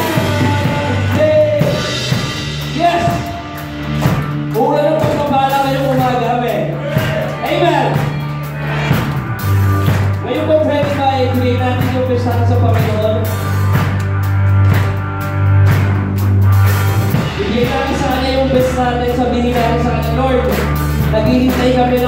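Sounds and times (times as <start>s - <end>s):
person singing: 0.0s - 1.8s
bass line: 0.0s - 22.0s
drums and cymbals: 0.0s - 22.0s
keyboard: 0.0s - 22.0s.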